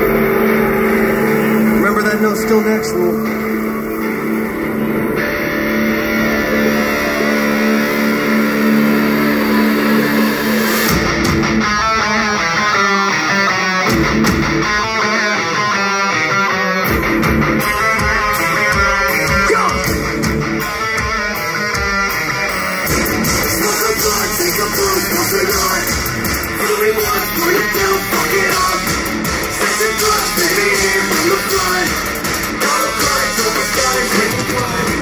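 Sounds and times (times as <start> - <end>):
held guitar notes ringing: 0.0 - 13.8
drums: 0.0 - 35.0
fast electric guitar riff: 0.0 - 35.0.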